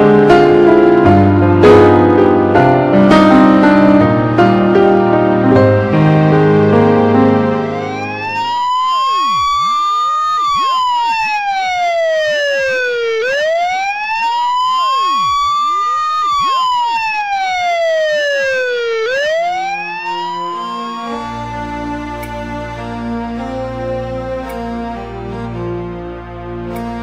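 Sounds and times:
music: 0:00.0 - 0:27.0
wailing siren: 0:07.5 - 0:22.7.

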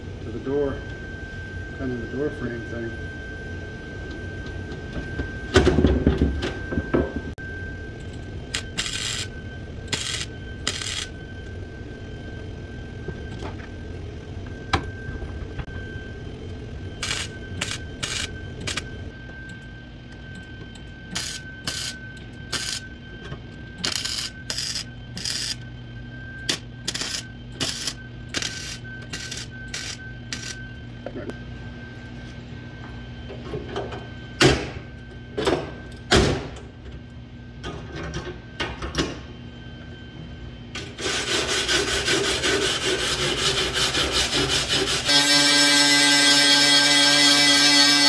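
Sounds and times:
thin high whine: 0:00.0 - 0:35.8
low hum: 0:00.0 - 0:38.6
welder tack welding bursts: 0:26.9 - 0:30.6.

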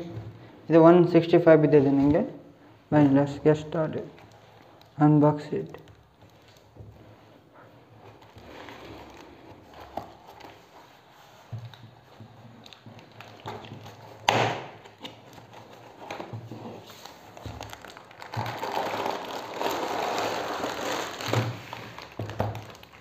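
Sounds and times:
plastic bag rustling: 0:05.8 - 0:14.2, 0:15.0 - 0:23.0.

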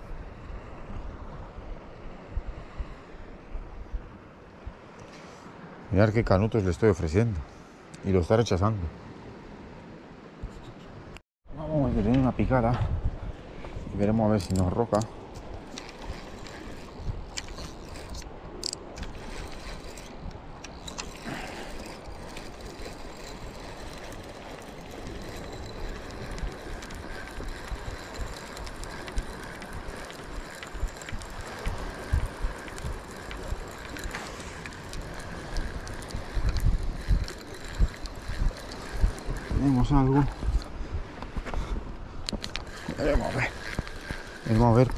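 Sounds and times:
fishing reel gears whirring: 0:14.3 - 0:41.2, 0:42.2 - 0:44.9.

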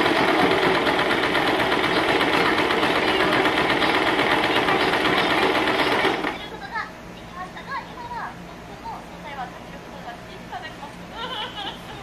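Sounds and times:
sewing machine running: 0:00.0 - 0:06.5.

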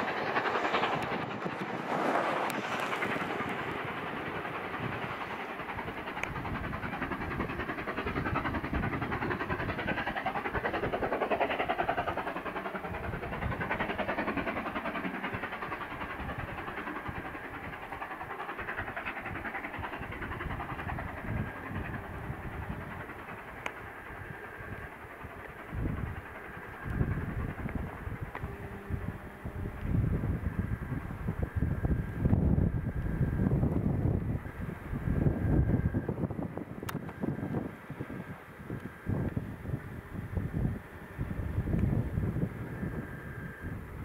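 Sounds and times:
train wheels clattering on rails: 0:00.0 - 0:31.4
steam locomotive exhaust beat: 0:00.0 - 0:44.0.

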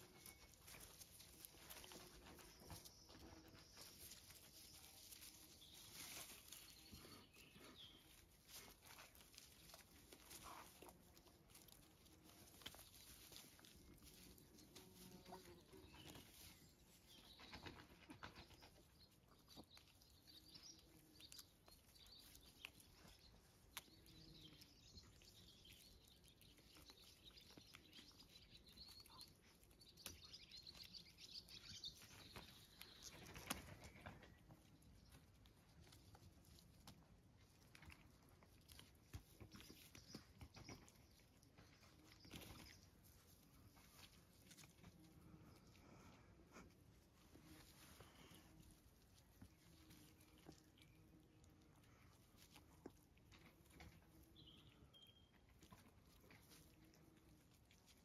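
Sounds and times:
faint birdsong: 0:00.0 - 0:58.0
grass and stick rustling: 0:00.0 - 0:58.0.

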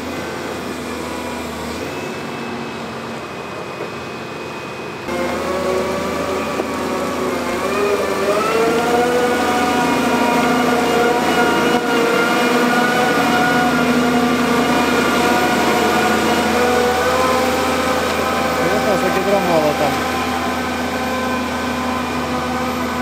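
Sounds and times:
heavy machinery engine running: 0:00.0 - 0:23.0.

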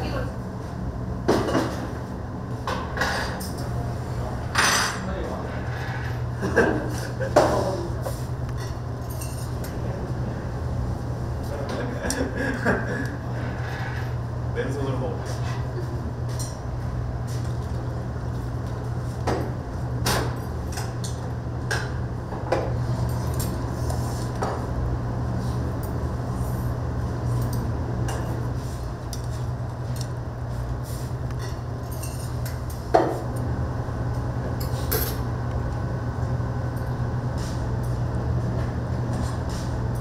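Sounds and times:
steady low hum: 0:00.0 - 0:40.0
dishes and utensils clinking: 0:04.5 - 0:05.1, 0:31.4 - 0:33.1.

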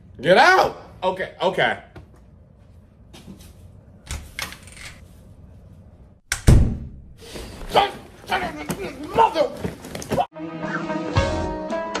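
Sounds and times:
footsteps: 0:07.2 - 0:10.3.

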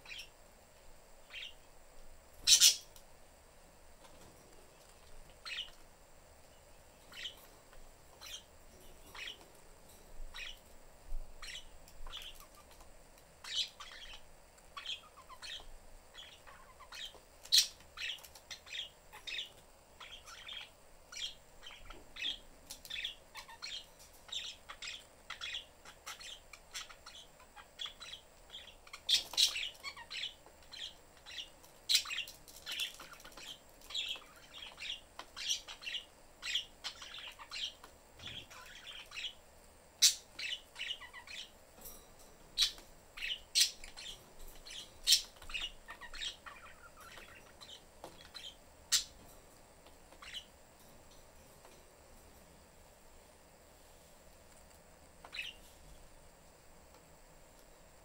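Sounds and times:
budgerigars chirping: 0:00.0 - 0:00.3, 0:01.3 - 0:01.6, 0:02.4 - 0:03.0, 0:05.4 - 0:05.8, 0:07.1 - 0:07.5, 0:08.2 - 0:08.5, 0:09.1 - 0:09.4, 0:10.3 - 0:10.6, 0:11.4 - 0:12.8, 0:13.4 - 0:39.4, 0:40.0 - 0:41.5, 0:42.6 - 0:49.2, 0:50.1 - 0:50.5, 0:55.2 - 0:55.6.

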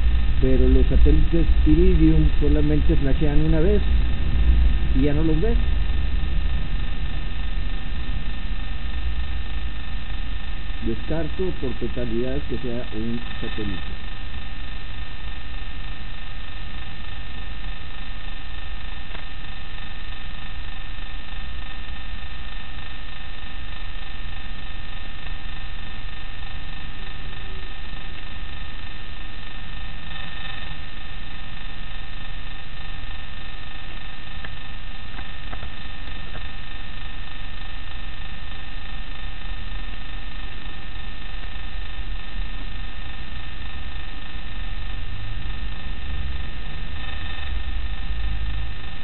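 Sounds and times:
steady tones: 0:00.0 - 0:15.5
low rumble: 0:00.0 - 0:17.9, 0:38.3 - 0:49.0
electrical hum and hiss: 0:00.0 - 0:49.0
faint ticks: 0:18.7 - 0:23.0, 0:24.0 - 0:49.0
faint tick: 0:19.1 - 0:19.3, 0:34.4 - 0:36.5.

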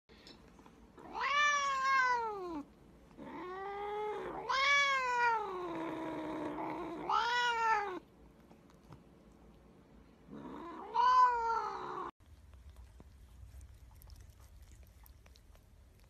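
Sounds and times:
cat meowing: 0:01.0 - 0:02.6, 0:03.2 - 0:05.7, 0:06.8 - 0:08.0, 0:10.4 - 0:12.1.

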